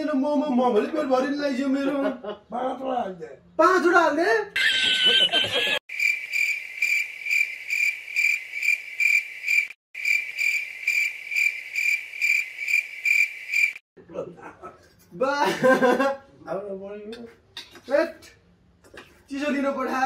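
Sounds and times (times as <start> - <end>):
cricket chirping: 5.9 - 13.8.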